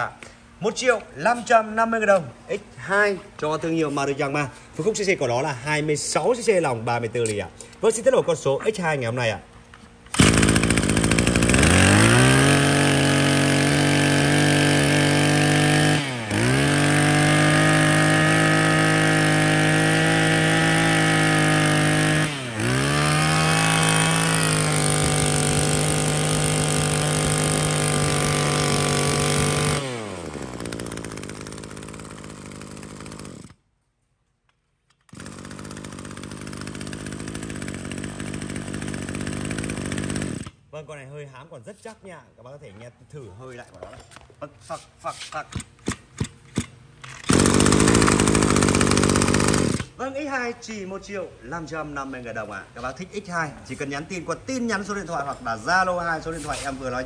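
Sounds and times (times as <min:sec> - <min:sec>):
brush cutter engine revving: 0:10.1 - 0:33.6, 0:35.1 - 0:40.6, 0:45.5 - 0:50.0.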